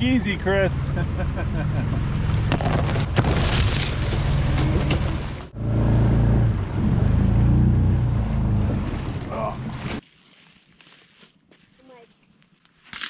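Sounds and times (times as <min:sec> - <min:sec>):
reeds scraping along boat: 0:08.6 - 0:10.8.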